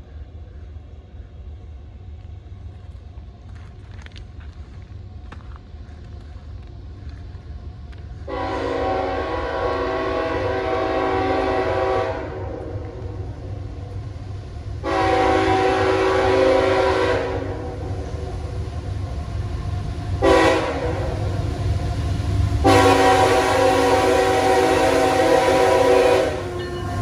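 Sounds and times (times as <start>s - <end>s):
low train rumble: 0.0s - 27.0s
locomotive air horn blast: 8.3s - 12.9s, 14.8s - 17.8s, 20.2s - 21.3s, 22.6s - 27.0s.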